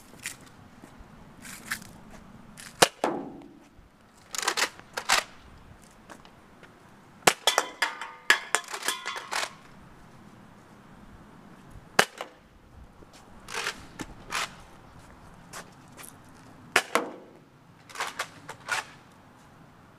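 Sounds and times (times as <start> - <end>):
cans clattering: 7.4 - 9.6.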